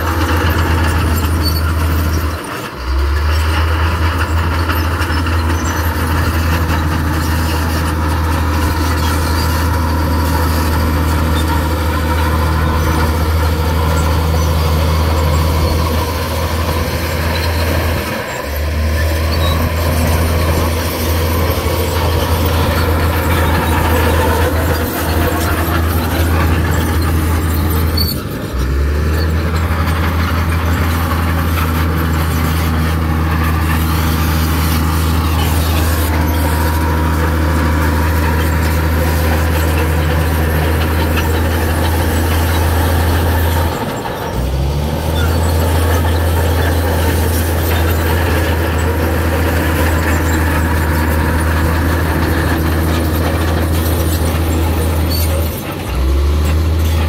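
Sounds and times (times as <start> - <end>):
heavy machinery diesel engine drone: 0.0 - 57.0.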